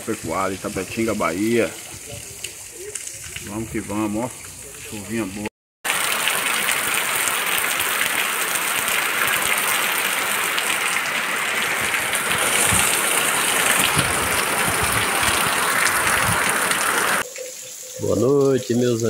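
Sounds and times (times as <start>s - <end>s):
heavy rain pouring: 0.0s - 4.9s, 5.8s - 19.0s.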